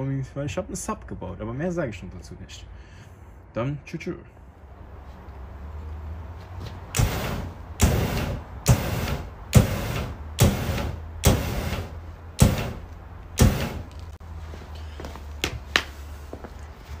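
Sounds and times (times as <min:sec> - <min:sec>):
flame bursts whooshing: 0:06.8 - 0:14.2.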